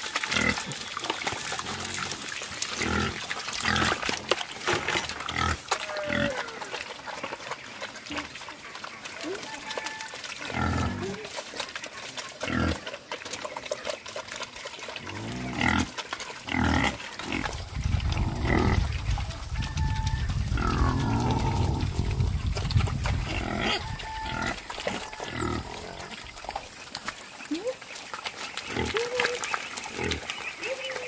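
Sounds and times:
wild boar grunting: 15.0 - 19.2, 20.5 - 26.6.

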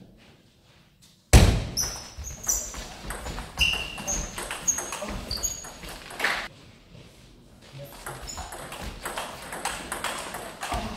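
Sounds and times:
shoes squeaking on floor: 1.8 - 6.5, 7.6 - 10.9
table tennis ball knocking: 2.7 - 6.5, 7.9 - 10.9.

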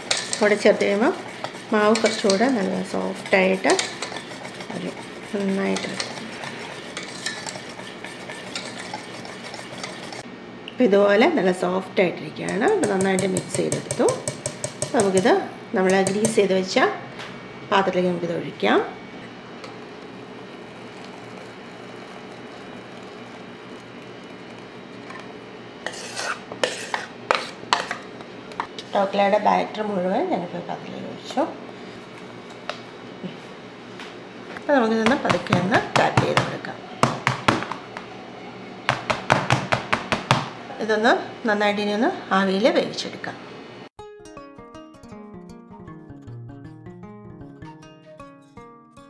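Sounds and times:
whisk beating batter: 0.0 - 10.2, 12.5 - 15.3, 15.9 - 16.4, 19.7 - 28.0
utensil scraping bowl: 0.0 - 10.3, 20.7 - 28.0.

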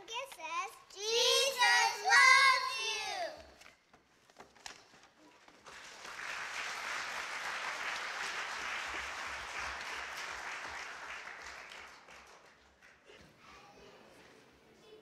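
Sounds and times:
audience applauding: 5.6 - 13.1.

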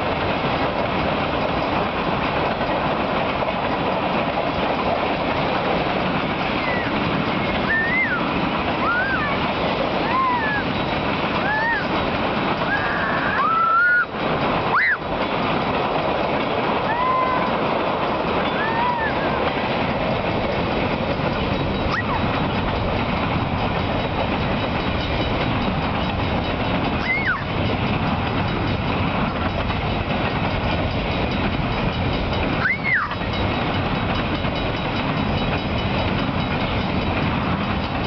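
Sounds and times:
freight train wheels rumbling on rails: 0.0 - 38.0
high wheel squeals: 6.6 - 9.4, 10.0 - 14.1, 21.7 - 22.4, 27.0 - 27.5, 32.6 - 33.3.

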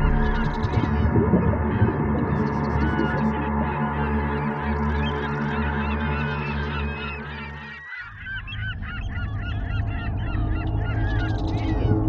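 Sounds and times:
steady low hum: 0.0 - 4.6
gulls calling: 0.0 - 12.0.

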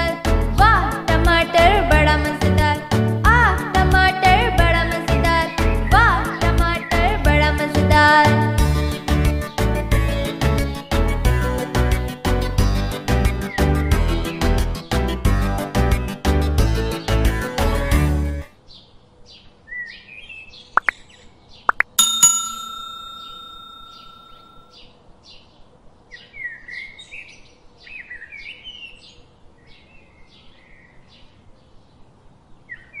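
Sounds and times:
bell ding: 22.0 - 24.7.

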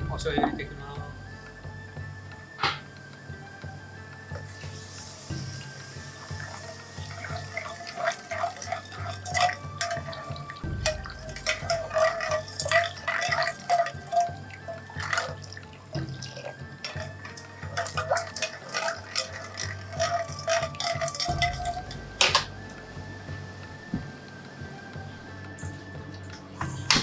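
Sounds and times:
background music: 0.0 - 27.0
liquid swishing: 4.3 - 25.4
ladle clinking against pan: 7.1 - 22.5.

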